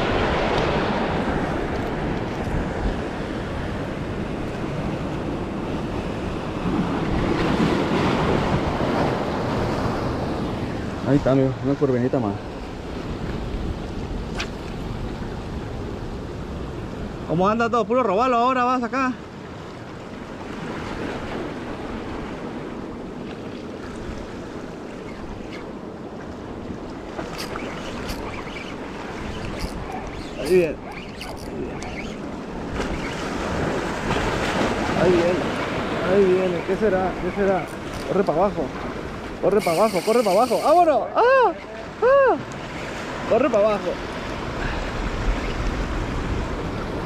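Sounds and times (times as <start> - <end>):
waves breaking on rocks: 0.0 - 17.2, 18.9 - 47.0
surf breaking on rocks: 31.5 - 41.0.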